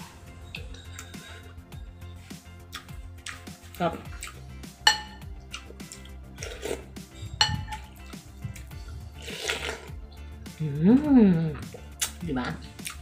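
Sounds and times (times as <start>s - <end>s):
background music: 0.0s - 13.0s
spoon clinking ceramic bowl: 0.4s - 1.9s, 4.8s - 5.3s, 7.2s - 8.0s.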